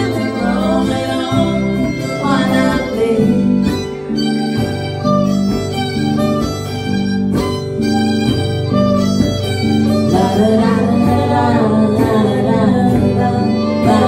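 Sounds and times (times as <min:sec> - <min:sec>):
fiddle playing lead: 0:00.0 - 0:14.0
strummed acoustic guitars: 0:00.0 - 0:14.0.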